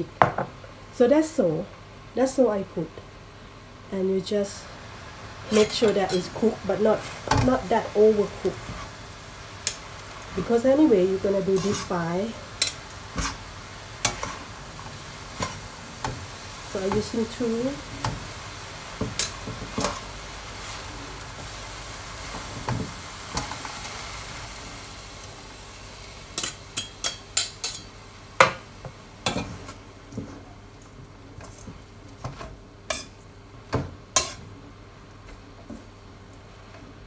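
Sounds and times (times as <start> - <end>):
vegetables sizzling in a wok: 0.0 - 37.0
spatula scraping a wok: 11.2 - 18.3, 19.0 - 21.6, 31.4 - 33.2, 34.2 - 34.5.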